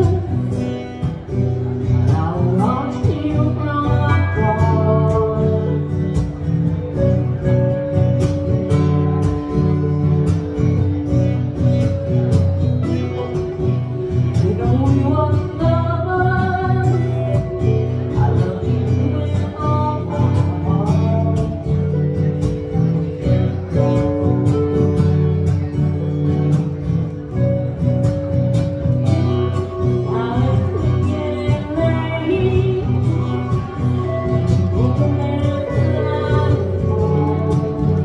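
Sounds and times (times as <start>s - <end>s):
strummed acoustic guitars: 0.0s - 38.0s
women singing: 30.0s - 38.0s.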